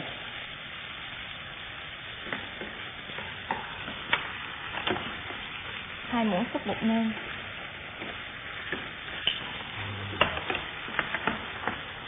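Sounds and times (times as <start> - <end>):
food sizzling in oil: 0.0 - 12.0.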